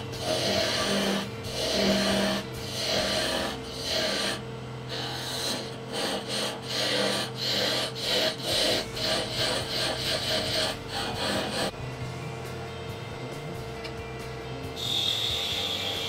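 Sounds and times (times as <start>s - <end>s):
tool scraping wood on lathe: 0.0s - 11.7s
lathe hum: 0.0s - 16.0s.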